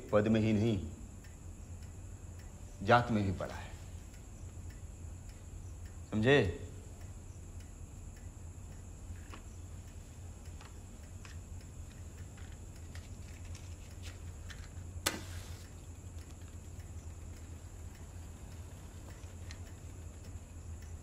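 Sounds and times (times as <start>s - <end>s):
faint ticks: 0.0s - 21.0s
cigarette lighter strike and hiss: 15.0s - 15.8s.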